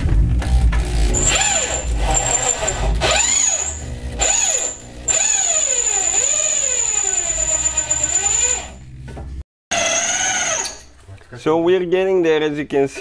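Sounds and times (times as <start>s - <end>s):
drill motor whine: 0.4s - 8.8s, 9.7s - 10.8s
drill bit squealing on metal: 1.1s - 8.8s, 9.7s - 10.9s.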